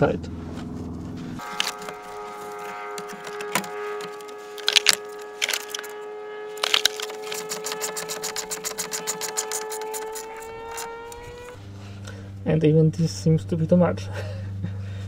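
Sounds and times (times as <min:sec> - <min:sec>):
steady humming tone: 0:00.0 - 0:15.0
hand tool clicking on screws: 0:06.8 - 0:10.9.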